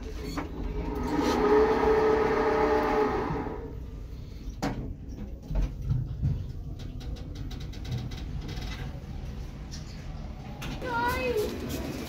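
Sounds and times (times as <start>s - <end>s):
lift machinery humming: 0.4s - 4.0s.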